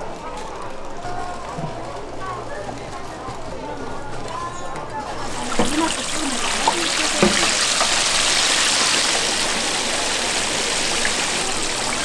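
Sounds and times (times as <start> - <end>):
chicken sizzling in hot oil: 5.2 - 12.0
utensils knocking: 5.3 - 9.7.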